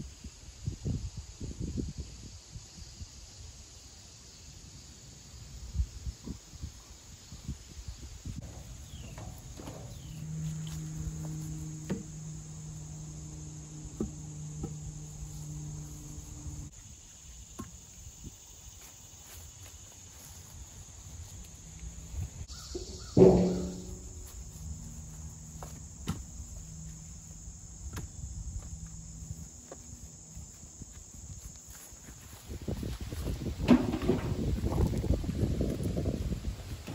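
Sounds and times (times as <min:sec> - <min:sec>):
insect chorus: 0:00.0 - 0:36.9
low hum: 0:08.4 - 0:16.7, 0:21.6 - 0:31.4
firewood knocking on woodpile: 0:22.8 - 0:24.3.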